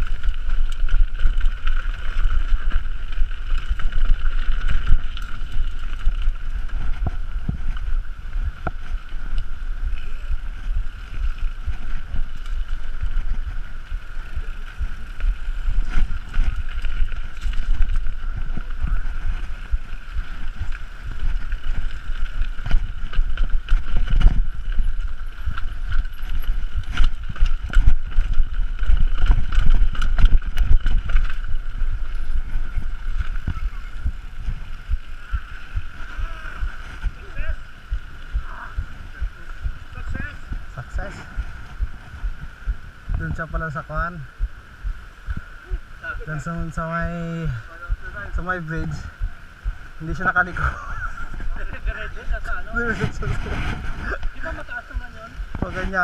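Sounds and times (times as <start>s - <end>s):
bike rattling and knocking: 0.0s - 45.4s
tyres rumbling on dirt: 0.0s - 45.4s
wind buffeting microphone: 0.0s - 56.0s.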